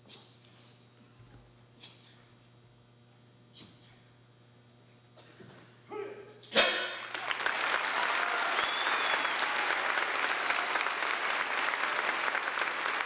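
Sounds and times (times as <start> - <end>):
audience applauding and cheering: 7.0 - 13.0.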